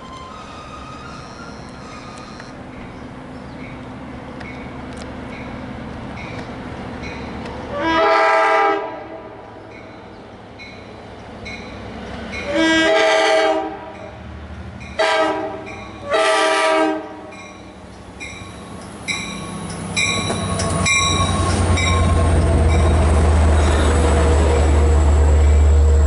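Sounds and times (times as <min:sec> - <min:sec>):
train rumbling past: 0:00.0 - 0:26.0
locomotive air horn blasts: 0:07.7 - 0:09.4, 0:12.5 - 0:14.1, 0:15.0 - 0:17.4
crossing bell ringing: 0:09.7 - 0:12.6, 0:17.3 - 0:23.8.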